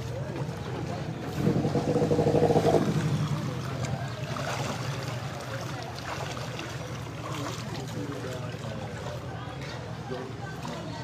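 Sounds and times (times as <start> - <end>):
boat motor running: 0.0 - 8.6.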